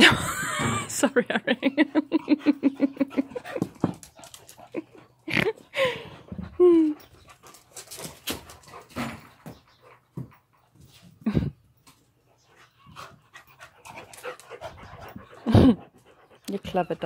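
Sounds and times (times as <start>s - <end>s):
dog panting: 2.1s - 10.6s, 12.2s - 17.0s.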